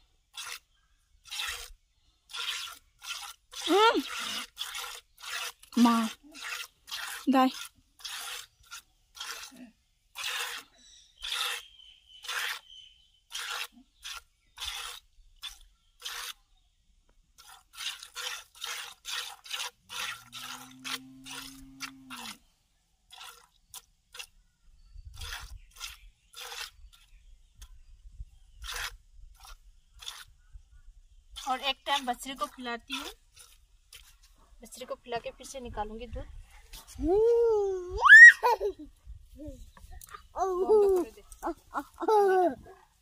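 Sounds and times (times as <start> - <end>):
milk squirting into bucket: 1.2 - 9.5, 10.1 - 11.6, 13.3 - 16.4, 17.4 - 22.4, 23.1 - 24.3, 25.1 - 27.0, 28.6 - 30.3
cow mooing: 20.1 - 22.3.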